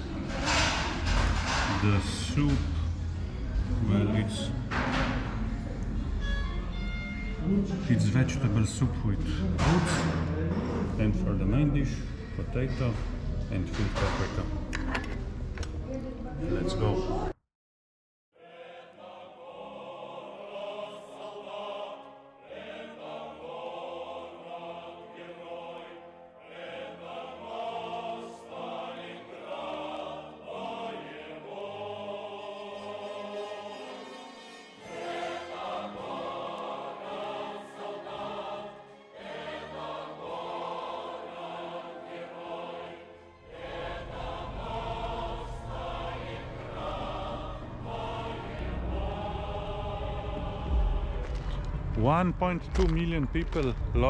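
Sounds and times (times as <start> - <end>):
choir singing: 0.0 - 17.3, 18.4 - 52.0
low rumble: 43.7 - 54.0.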